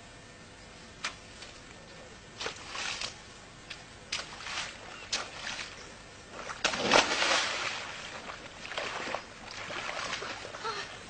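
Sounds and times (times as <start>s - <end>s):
muddy water sloshing: 2.4s - 11.0s
splash into muddy puddle: 6.5s - 10.4s.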